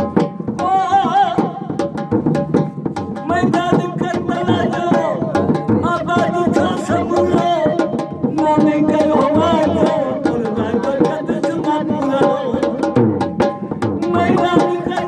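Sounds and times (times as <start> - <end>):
dhol drum strokes: 0.0 - 15.0
elderly man singing: 0.6 - 1.8, 3.2 - 13.0, 14.0 - 15.0.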